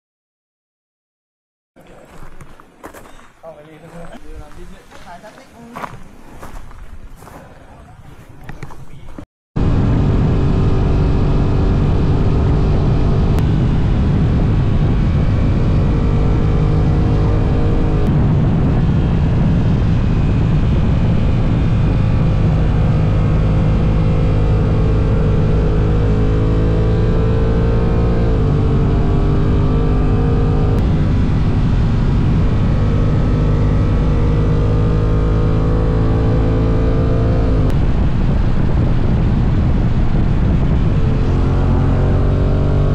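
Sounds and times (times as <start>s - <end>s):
motorcycle engine running: 9.6s - 42.9s
wind rush: 9.6s - 42.9s.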